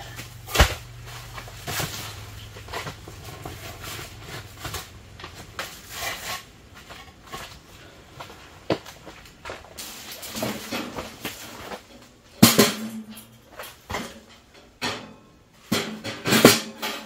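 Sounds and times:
stone pavers set down: 0:08.7 - 0:15.1.

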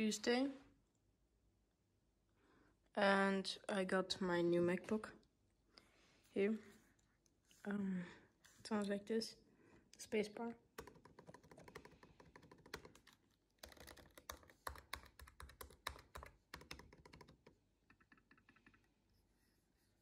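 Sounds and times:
laptop keyboard clicking: 0:10.8 - 0:18.9.

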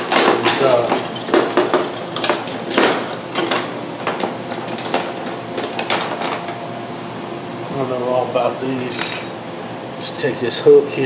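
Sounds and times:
metal hooks clinking: 0:08.8 - 0:09.4.

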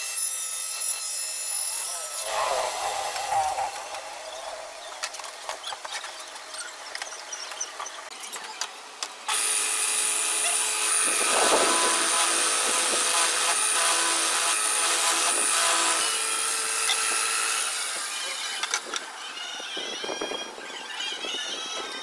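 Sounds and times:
drill bit cutting wood: 0:00.0 - 0:04.8, 0:09.3 - 0:22.0.

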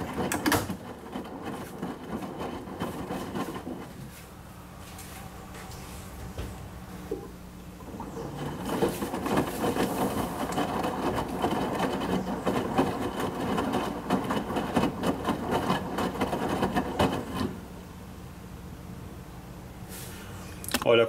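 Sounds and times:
washing machine drum turning: 0:00.0 - 0:03.9, 0:07.8 - 0:17.6.

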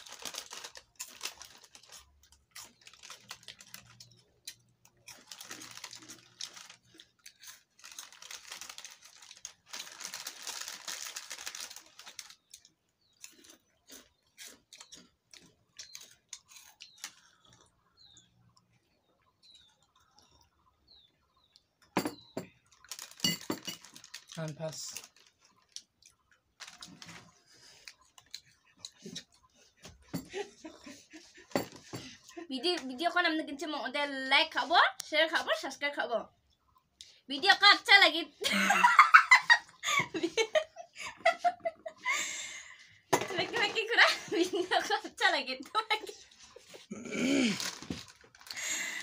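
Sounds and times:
plastic sachets crinkling: 0:00.0 - 0:17.7, 0:22.7 - 0:28.4, 0:46.3 - 0:49.0
chewing: 0:00.0 - 0:21.9, 0:25.0 - 0:30.1.

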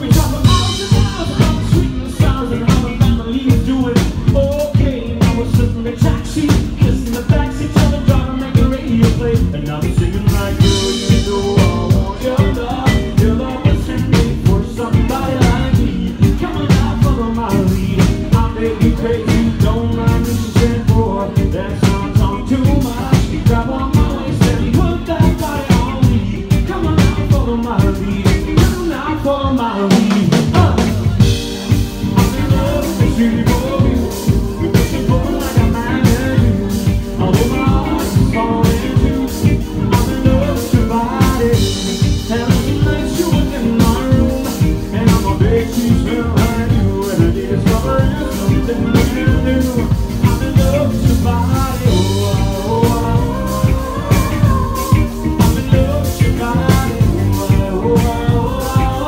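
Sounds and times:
drum kit beat: 0:00.0 - 0:59.0
electric guitar: 0:00.0 - 0:59.0
man singing: 0:00.0 - 0:59.0
woman singing: 0:00.0 - 0:59.0.

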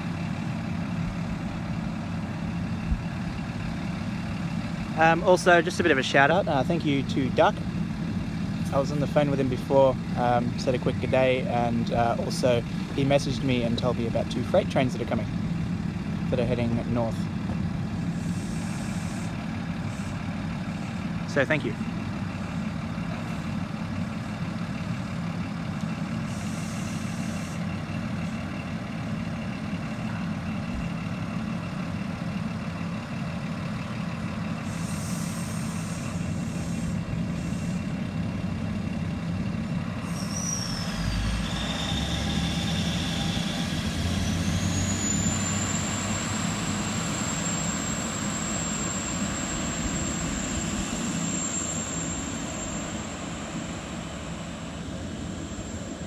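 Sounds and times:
diesel railcar idling hum: 0:00.0 - 0:56.0
railcar engine whine: 0:00.0 - 0:56.0.

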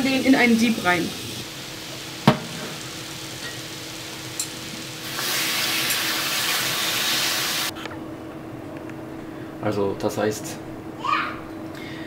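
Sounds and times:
tap running into metal sink: 0:02.2 - 0:02.8.

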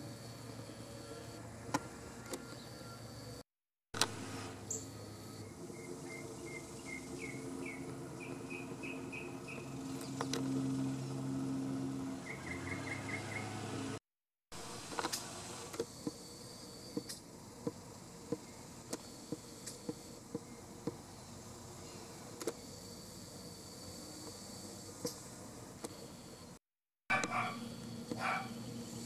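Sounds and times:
high insect drone: 0:00.0 - 0:03.4, 0:14.7 - 0:29.0.

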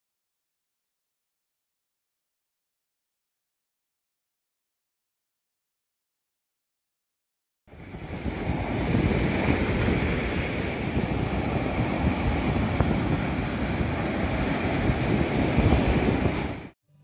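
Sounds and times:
surf: 0:07.7 - 0:16.8
wind: 0:07.7 - 0:17.0.

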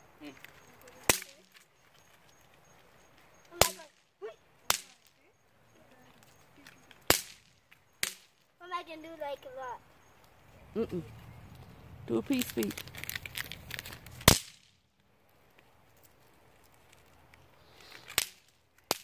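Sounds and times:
bang snaps popping on asphalt: 0:00.8 - 0:01.7, 0:03.4 - 0:04.0, 0:04.7 - 0:05.2, 0:06.6 - 0:08.5, 0:12.3 - 0:15.1, 0:17.9 - 0:19.0.

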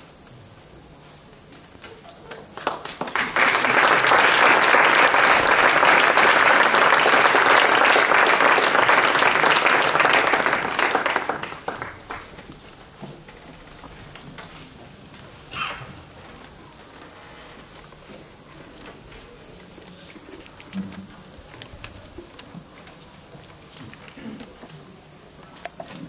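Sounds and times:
audience applauding: 0:02.1 - 0:12.6.

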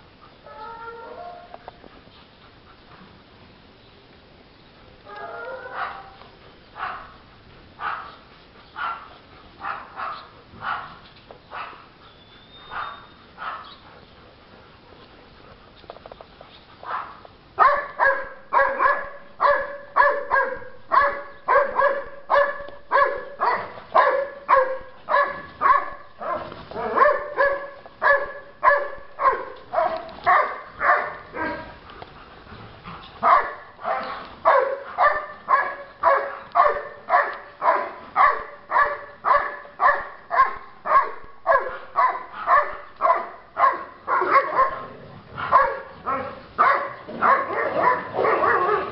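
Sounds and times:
dog barking: 0:05.4 - 0:06.2, 0:07.8 - 0:08.2, 0:08.8 - 0:10.9, 0:12.7 - 0:13.7, 0:16.9 - 0:31.6, 0:33.2 - 0:48.9.

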